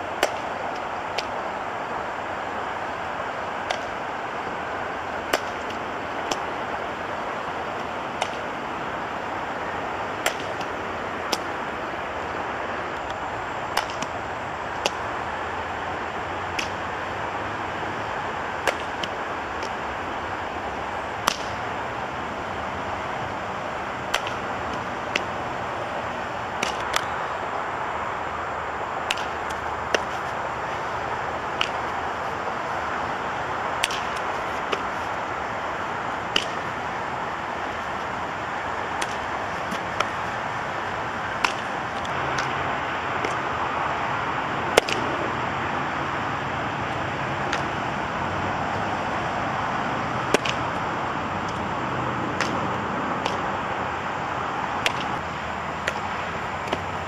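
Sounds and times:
outdoor noise rush: 0.0 - 57.0
sharp knocks of balls: 0.2 - 1.4, 5.3 - 6.5, 7.8 - 8.5, 10.2 - 11.6, 13.7 - 14.2, 14.8 - 15.0, 16.5 - 16.8, 18.6 - 19.8, 21.2 - 21.6, 24.0 - 25.3, 26.6 - 27.1, 29.0 - 30.2, 31.5 - 32.0, 33.8 - 35.0, 36.3 - 36.8, 38.9 - 40.2, 41.4 - 42.6, 44.7 - 45.2, 47.4 - 47.8, 50.2 - 50.8, 52.3 - 53.5.

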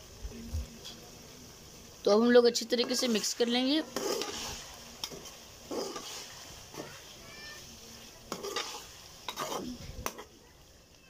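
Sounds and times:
faint sizzle: 0.0 - 11.0
metal spatula scraping a wok: 2.8 - 10.3.

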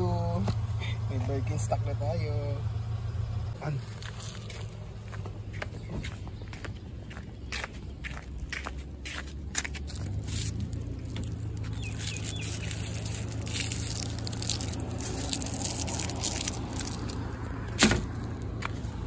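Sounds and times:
cardboard and plastic rustling: 9.7 - 18.8.

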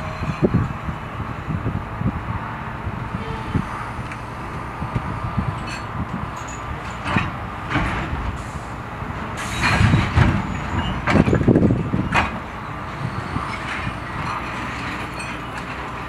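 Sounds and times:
excavator diesel engine running: 0.0 - 16.0
scrap iron clattering and clanking: 5.4 - 8.6, 9.2 - 16.0.

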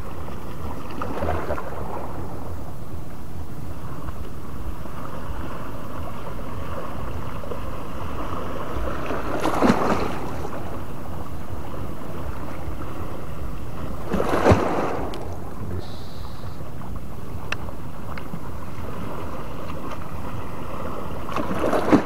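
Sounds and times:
sea water lapping: 0.0 - 22.0
noise bursts: 15.2 - 16.8.

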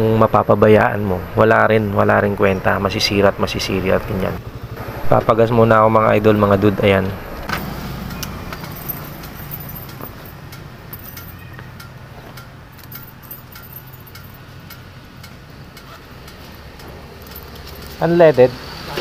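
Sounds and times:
light clicks and clinks: 8.1 - 18.0.

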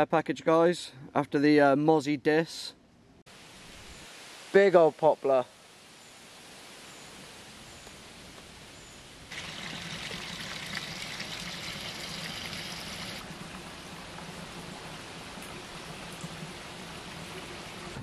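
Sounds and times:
faint hiss: 2.5 - 18.0
shallow water trickling over stones: 9.3 - 18.0.

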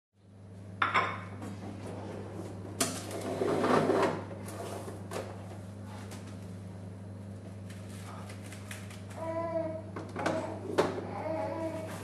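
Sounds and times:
steady low hum: 0.2 - 12.0.

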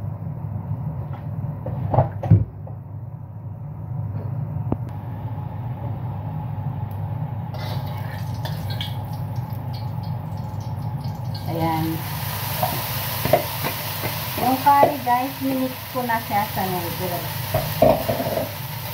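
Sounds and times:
range hood fan humming: 0.0 - 18.9
oil crackling in wok: 7.6 - 18.9.

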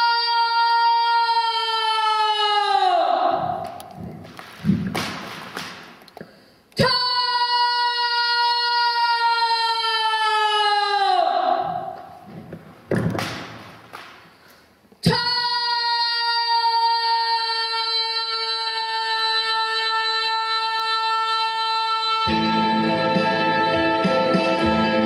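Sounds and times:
faint breathy noise: 6.2 - 6.8.

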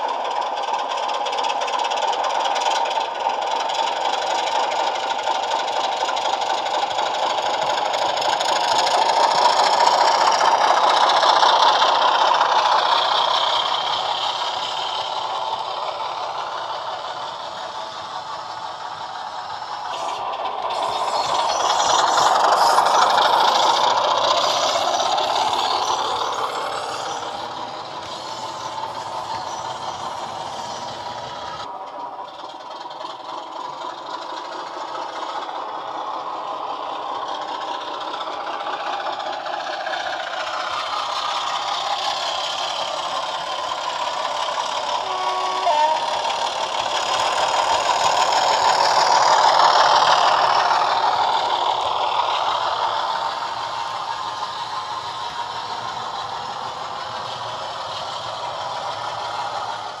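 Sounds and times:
diesel engine sound from small speaker: 0.0 - 60.0
model wheels rattling on track: 0.0 - 60.0
brief tone: 45.0 - 46.1.

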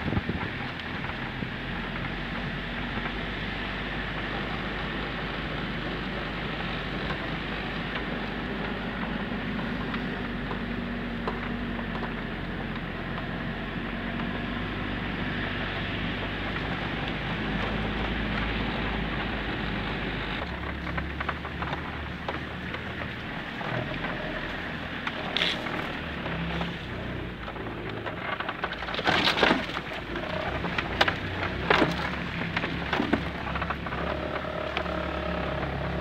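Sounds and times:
diesel engine running: 0.0 - 36.0
vehicle body rattling: 4.1 - 36.0
sharp cracks and knocks: 16.4 - 36.0.

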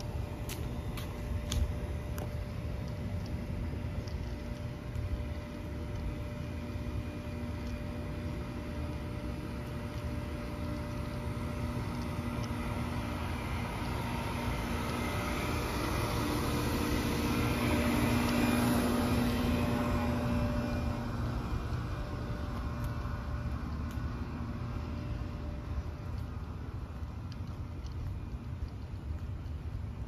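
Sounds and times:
air conditioner units humming: 0.0 - 30.0
low rumble: 0.0 - 30.0.

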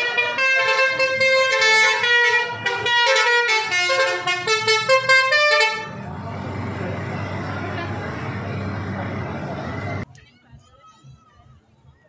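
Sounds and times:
bus horn playing tune: 0.0 - 6.0.

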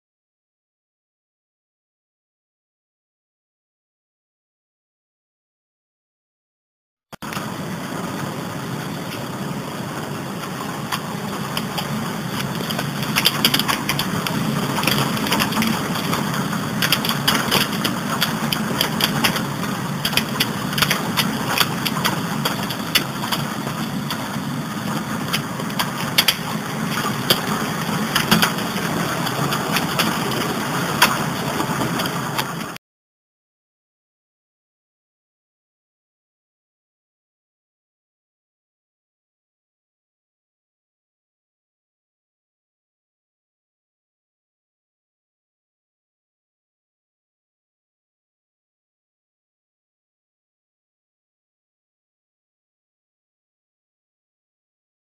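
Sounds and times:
heavy rain downpour: 7.2 - 32.8
hailstones ticking on window glass: 10.0 - 32.8.

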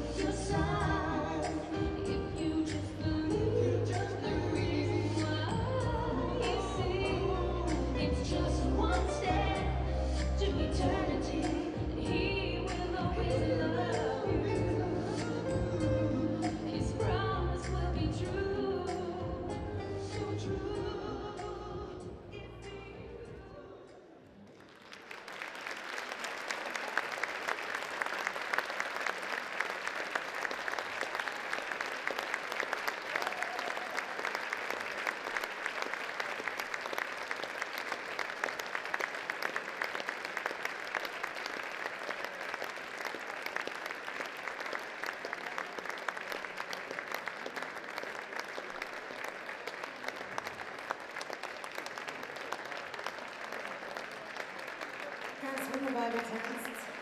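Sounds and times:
audience applauding: 24.3 - 57.0.

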